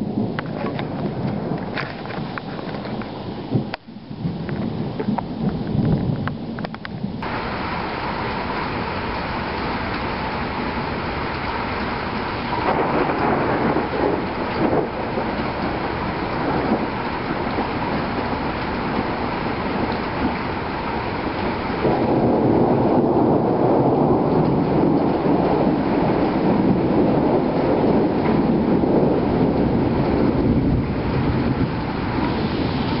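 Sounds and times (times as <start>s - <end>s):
rain falling: 0.0s - 33.0s
rumble of thunder: 0.0s - 33.0s.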